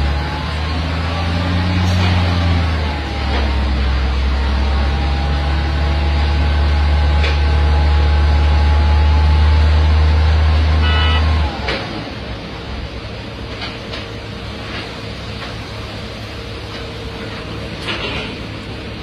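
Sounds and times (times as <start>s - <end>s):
heavy diesel engine running: 0.0s - 19.0s.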